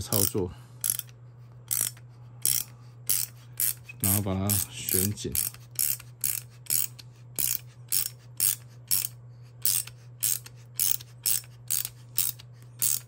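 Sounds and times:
ratchet wrench clicking: 0.0s - 13.0s.

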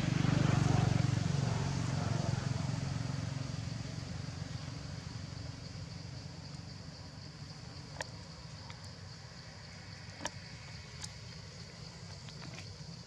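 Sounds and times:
passing vehicle engine droning: 0.0s - 6.3s.

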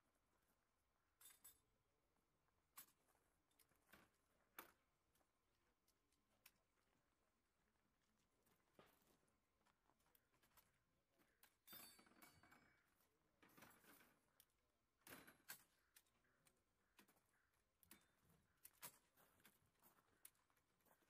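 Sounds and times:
metal parts clicking and clacking: 11.4s - 16.2s.

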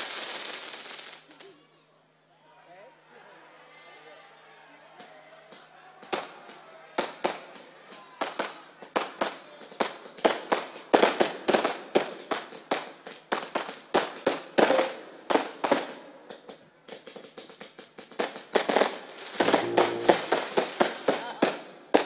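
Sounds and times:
fireworks banging: 14.4s - 16.0s, 18.2s - 22.0s.

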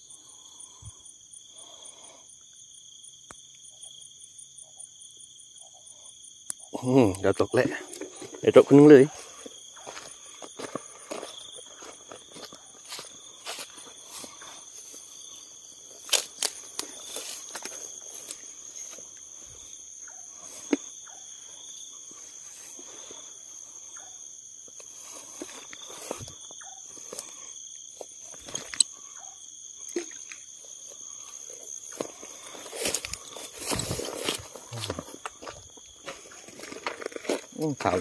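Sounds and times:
crickets chirping: 0.0s - 38.0s
footsteps through grass: 8.0s - 19.7s, 24.8s - 27.4s, 30.8s - 37.6s.

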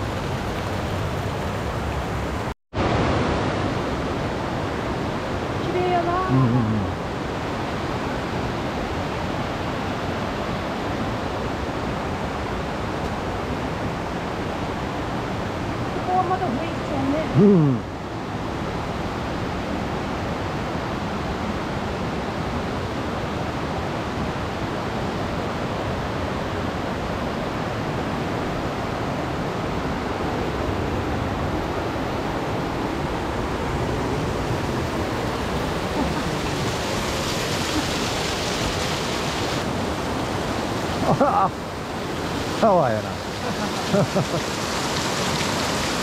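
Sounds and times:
waterfall rushing: 25.5s - 46.0s.

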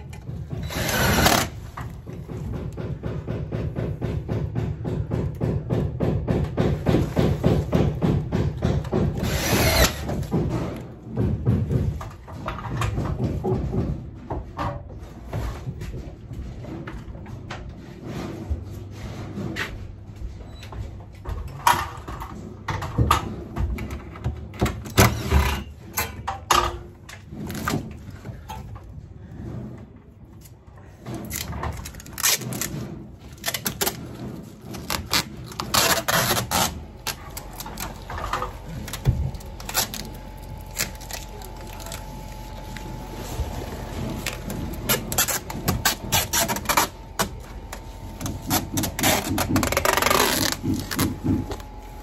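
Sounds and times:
rasping bursts: 9.0s - 10.3s
foil insulation crinkling: 31.2s - 52.0s.

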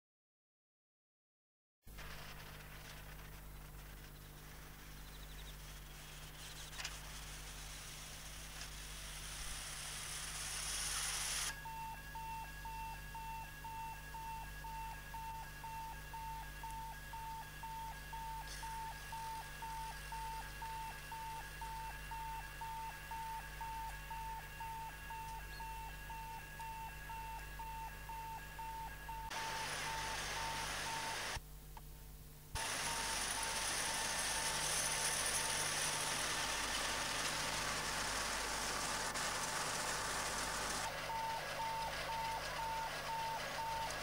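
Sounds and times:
low hum: 1.9s - 10.8s
hiss: 5.5s - 11.5s, 29.4s - 31.4s, 32.6s - 40.9s
electronic beeping: 11.5s - 31.4s, 41.1s - 44.0s.

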